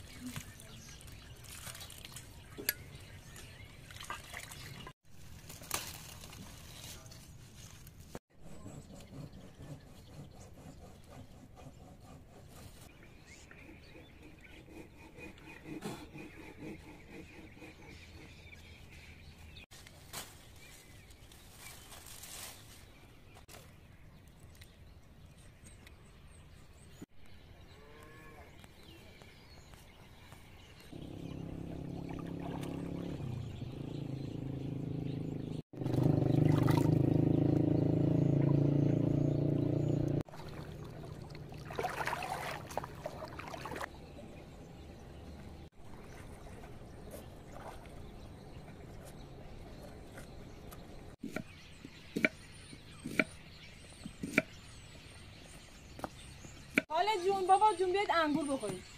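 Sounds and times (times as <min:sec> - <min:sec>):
outdoor ambience: 0:00.0 - 0:58.9
engine-like hum: 0:30.9 - 0:54.5.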